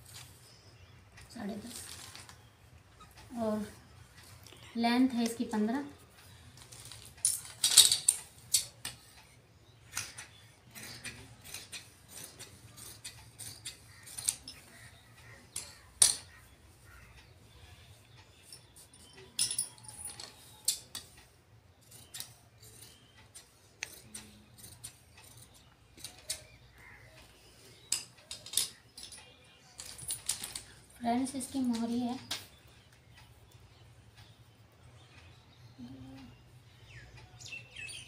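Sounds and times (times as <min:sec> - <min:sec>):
scissors cutting fabric: 0:09.9 - 0:15.0, 0:21.8 - 0:26.6.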